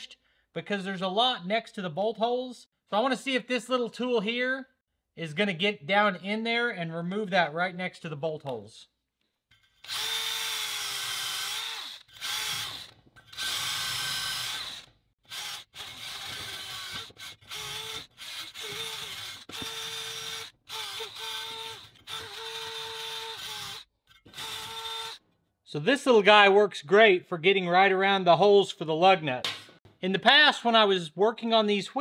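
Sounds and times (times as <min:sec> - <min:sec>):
drill stripping rust off steel: 0:09.6 - 0:25.2.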